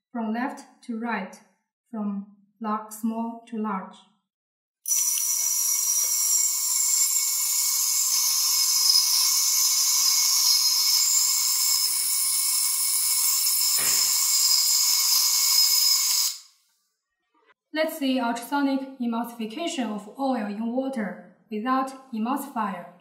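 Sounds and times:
ultrasonic probe hissing whine: 0:04.9 - 0:16.5.

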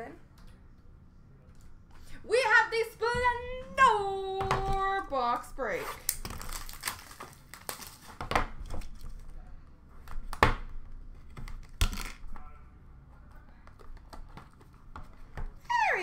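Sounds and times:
plastic wrap crinkling: 0:06.0 - 0:09.5.

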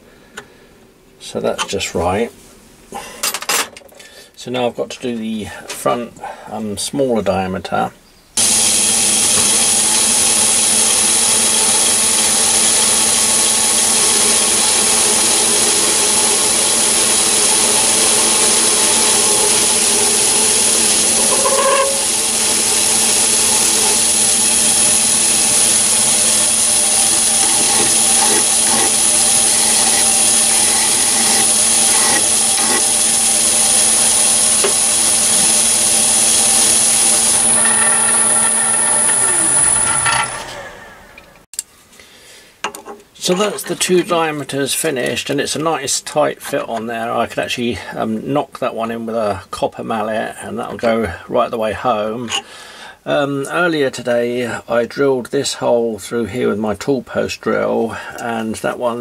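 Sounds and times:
high-pitched whine: 0:08.4 - 0:41.5
lathe hum and hiss: 0:08.4 - 0:41.5.

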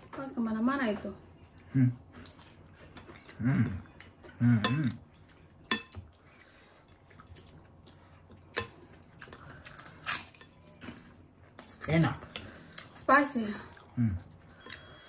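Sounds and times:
metal spoons clinking on plate: 0:05.7 - 0:06.0.

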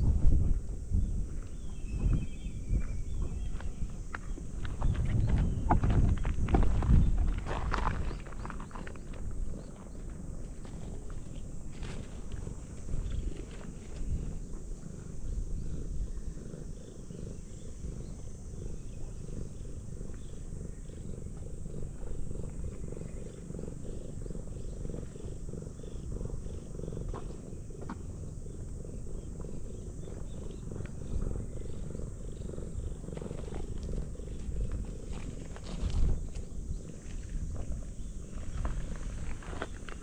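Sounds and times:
cat purring: 0:00.0 - 0:40.0
paws crunching gravel: 0:02.8 - 0:14.4, 0:32.5 - 0:40.0.

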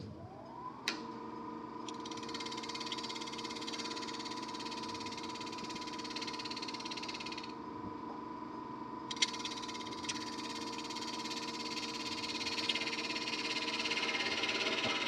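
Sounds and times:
wood lathe motor whine: 0:00.0 - 0:15.0
turning tool cutting wood: 0:09.2 - 0:15.0.

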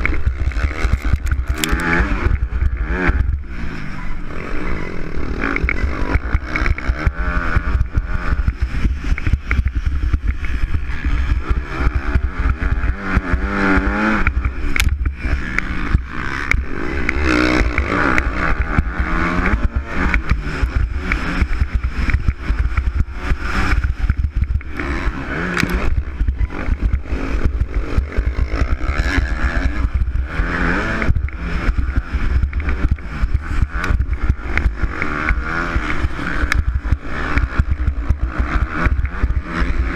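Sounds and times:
wind noise on microphone: 0:00.0 - 0:04.3
motocross bike engine revving: 0:00.0 - 0:39.9.

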